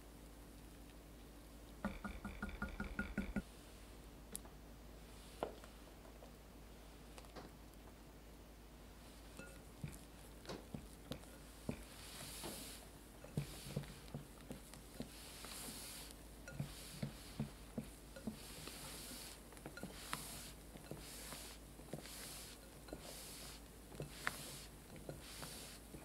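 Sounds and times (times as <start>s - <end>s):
batter squishing and swishing: 8.9s - 26.0s.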